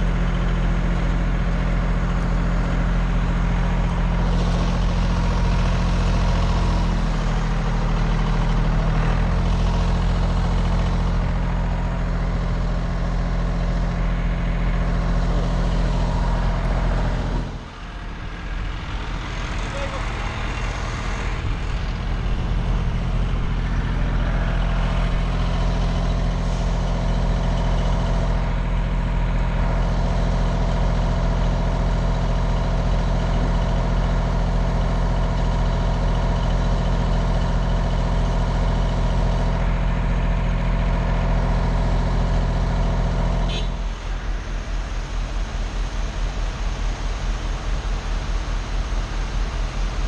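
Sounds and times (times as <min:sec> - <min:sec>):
diesel engine running: 0:00.0 - 0:50.0.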